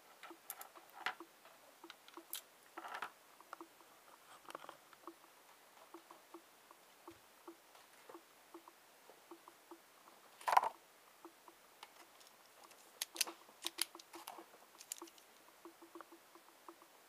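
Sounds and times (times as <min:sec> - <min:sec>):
faint irregular ticking: 0:00.0 - 0:17.0
pen clicking and tapping: 0:11.8 - 0:16.1.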